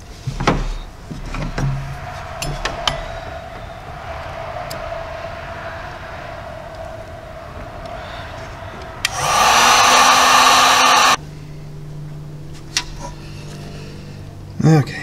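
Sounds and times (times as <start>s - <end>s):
heat gun fan blowing: 6.1s - 11.2s.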